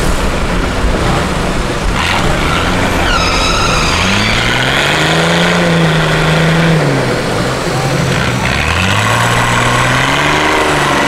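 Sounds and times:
high whine: 0:00.0 - 0:08.1
truck engines under load: 0:00.0 - 0:11.0.

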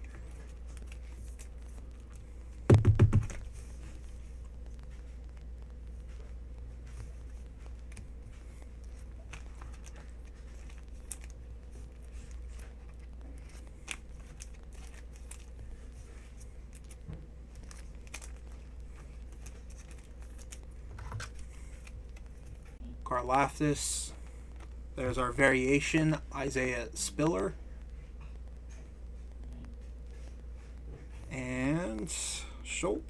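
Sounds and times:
card pack crinkling and rustling: 0:00.0 - 0:02.3, 0:07.2 - 0:22.7
steady low hum: 0:00.0 - 0:33.0.

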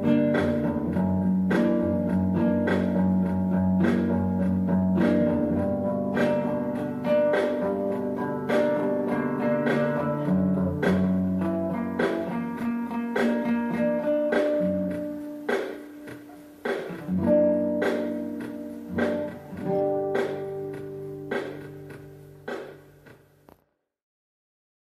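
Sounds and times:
guitar strumming slow chords: 0:00.0 - 0:23.0.

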